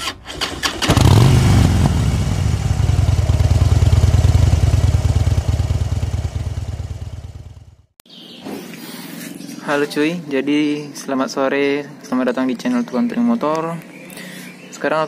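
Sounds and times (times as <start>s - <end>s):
motorcycle engine revving and idling: 0.6s - 8.0s.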